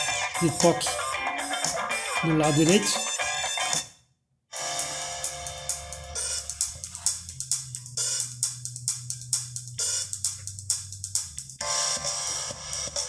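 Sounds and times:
song with drums and cymbals: 0:00.0 - 0:03.8, 0:04.7 - 0:13.0.

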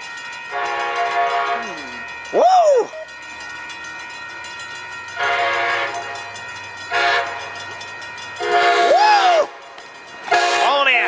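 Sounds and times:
low rumble of train: 0:00.0 - 0:11.0
locomotive air horn blasts: 0:00.5 - 0:01.7, 0:05.2 - 0:06.3, 0:06.9 - 0:07.5, 0:08.4 - 0:09.7, 0:10.3 - 0:11.0.

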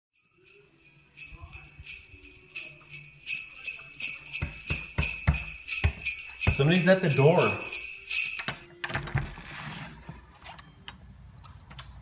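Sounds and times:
sleigh bells jingling: 0:00.2 - 0:08.7
knocks on door: 0:04.4 - 0:06.7.

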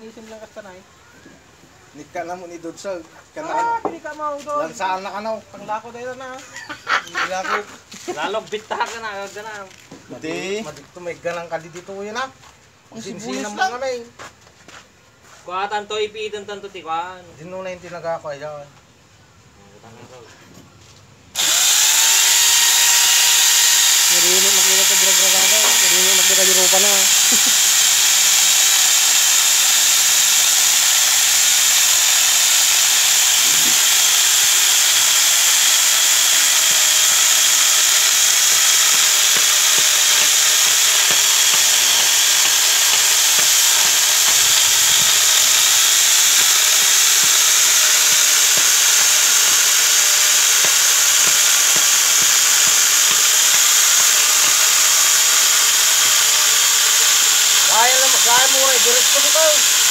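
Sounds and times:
chainsaw cutting through log: 0:21.4 - 0:59.9.

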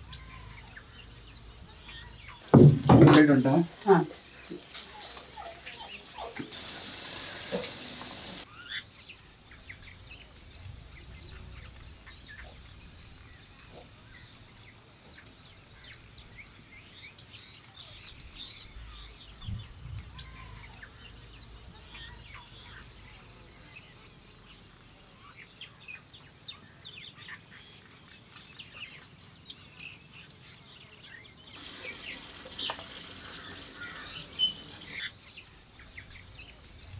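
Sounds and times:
birds chirping faintly: 0:00.0 - 0:36.9
steady hiss: 0:02.3 - 0:08.6, 0:31.5 - 0:36.9.

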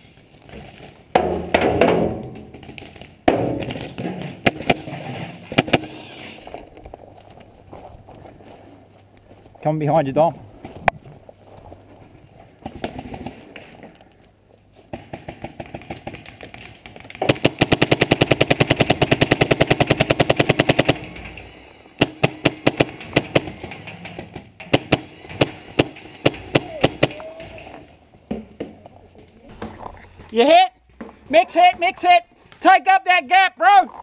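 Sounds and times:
paintball marker firing: 0:05.5 - 0:06.1.

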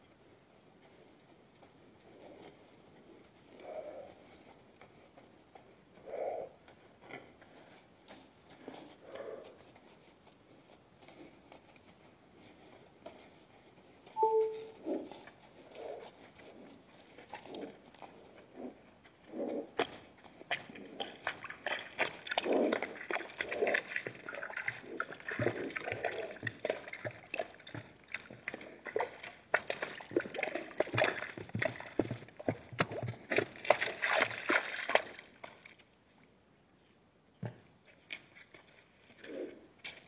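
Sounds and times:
zebras slurping water: 0:15.3 - 0:36.0, 0:37.9 - 0:40.0.

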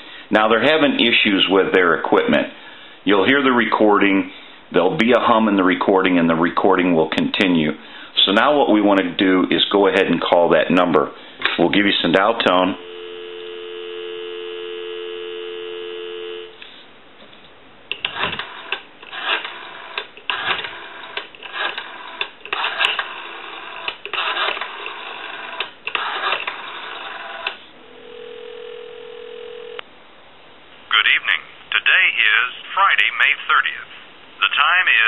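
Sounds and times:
telephone dial tone: 0:12.8 - 0:16.6, 0:26.0 - 0:29.8
telephone ringback tone: 0:12.8 - 0:16.6, 0:27.9 - 0:29.8.

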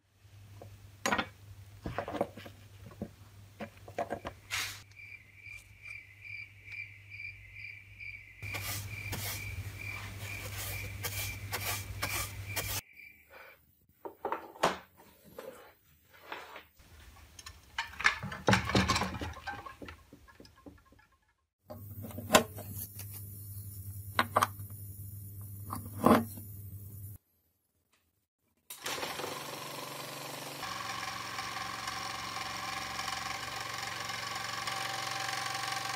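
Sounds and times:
objects clattering on workbench: 0:01.0 - 0:04.8, 0:14.0 - 0:22.8, 0:25.6 - 0:26.5
scraping and brushing metal: 0:08.4 - 0:12.8, 0:15.2 - 0:21.0.

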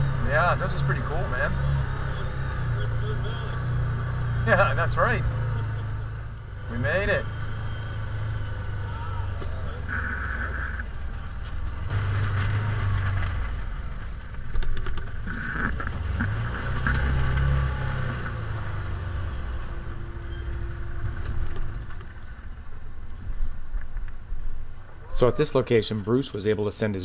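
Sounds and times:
utility vehicle engine running: 0:00.0 - 0:27.0
knocks and rattles: 0:12.0 - 0:17.6.

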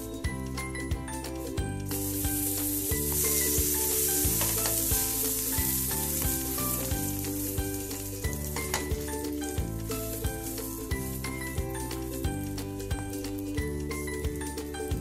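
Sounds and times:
background music with beat: 0:00.0 - 0:15.0
bread sizzling on hot griddle: 0:01.9 - 0:08.8, 0:09.9 - 0:11.5.

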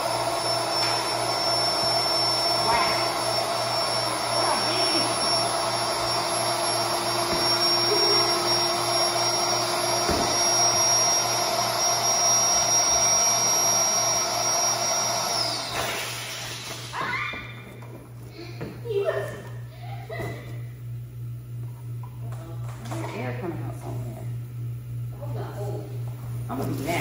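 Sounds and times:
electric air pump whining: 0:00.0 - 0:20.8.

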